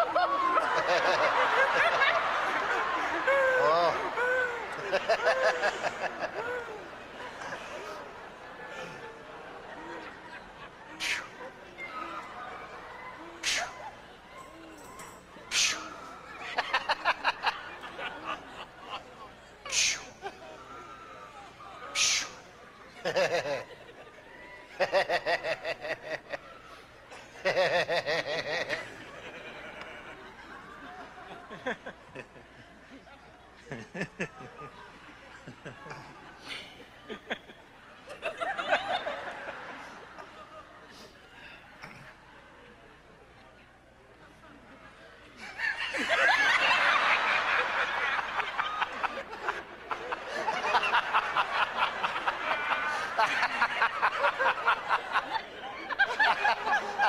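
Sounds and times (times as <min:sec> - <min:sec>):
person laughing: 0:00.0 - 0:08.1
group of people laughing: 0:00.0 - 0:57.0.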